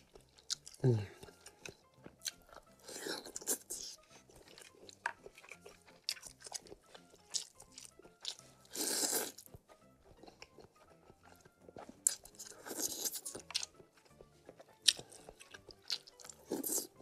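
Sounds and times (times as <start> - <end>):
faint background music: 0.0 - 17.0
wet chewing: 0.0 - 17.0
slurping noodles: 8.6 - 9.5, 11.8 - 13.4.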